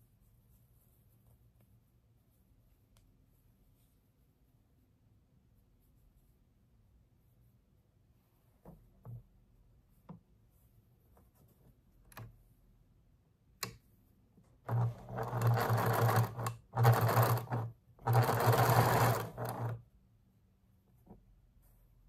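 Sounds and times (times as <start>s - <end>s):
sewing machine stitching: 14.6s - 19.8s.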